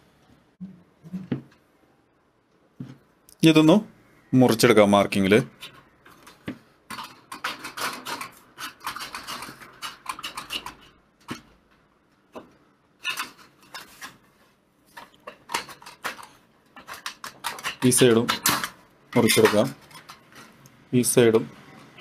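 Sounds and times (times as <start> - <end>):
metal shears snipping sheet metal: 6.9 - 11.0.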